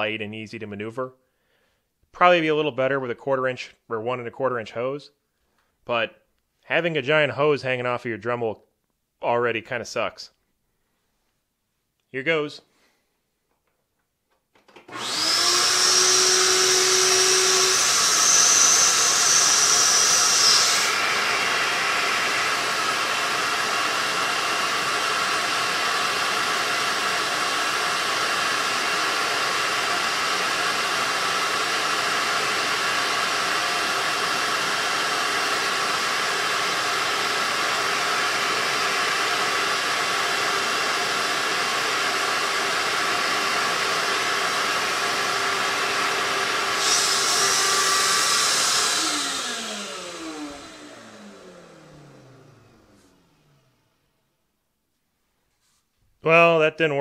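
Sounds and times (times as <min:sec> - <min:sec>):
shop vac running: 0:14.6 - 0:54.2.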